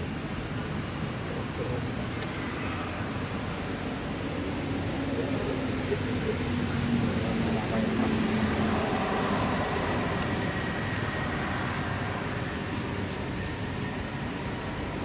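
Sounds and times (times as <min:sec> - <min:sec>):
road traffic noise: 0:00.0 - 0:15.0
vehicle engine low hum: 0:03.0 - 0:15.0.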